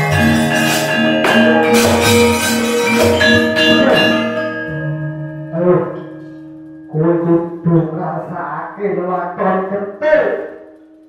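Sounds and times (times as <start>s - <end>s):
drum strokes: 0.0s - 4.6s
ringing tone: 0.0s - 9.6s
metallophones and gongs: 0.0s - 11.0s.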